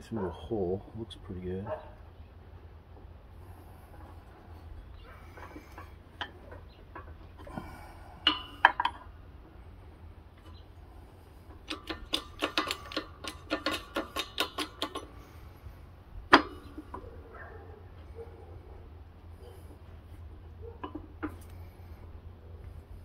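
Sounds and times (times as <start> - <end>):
metal clinks and taps: 11.6 - 15.2.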